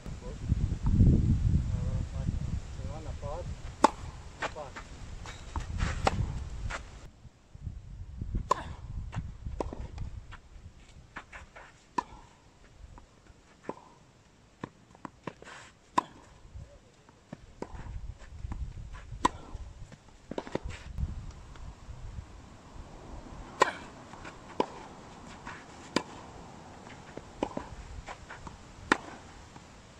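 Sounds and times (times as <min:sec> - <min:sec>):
shoes scuffing on clay: 0:03.6 - 0:07.0, 0:09.1 - 0:12.1, 0:23.8 - 0:29.3
racket hitting tennis ball: 0:03.7 - 0:06.9, 0:08.4 - 0:10.0, 0:11.2 - 0:12.3, 0:15.0 - 0:16.4, 0:18.5 - 0:19.6, 0:20.3 - 0:20.8, 0:23.4 - 0:29.6
tennis ball bouncing: 0:03.8 - 0:06.4, 0:15.9 - 0:16.4, 0:19.2 - 0:19.6, 0:23.5 - 0:26.2, 0:26.8 - 0:29.6.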